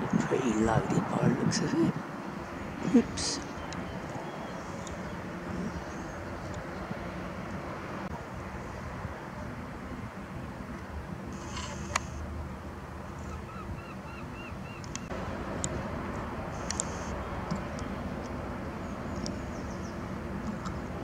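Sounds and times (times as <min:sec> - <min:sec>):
low hum: 0:00.0 - 0:21.0
repeated bird calls: 0:02.3 - 0:07.0, 0:13.1 - 0:15.1, 0:16.6 - 0:21.0.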